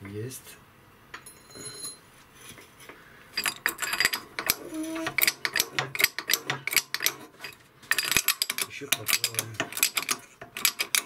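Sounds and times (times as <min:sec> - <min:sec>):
shop press metallic clicking: 0:03.4 - 0:11.0.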